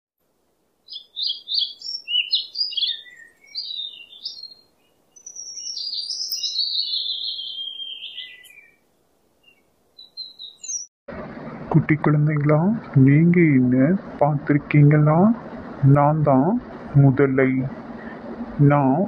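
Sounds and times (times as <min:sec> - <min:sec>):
songbird singing: 0:00.8 - 0:10.9.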